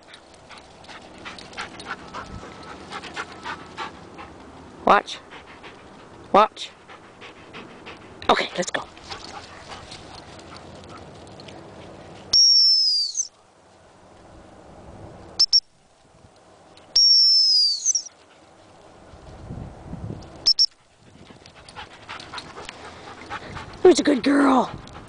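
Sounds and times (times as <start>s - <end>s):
dog whistle blasts: 12.3s - 13.3s, 17.0s - 18.1s, 20.4s - 20.7s.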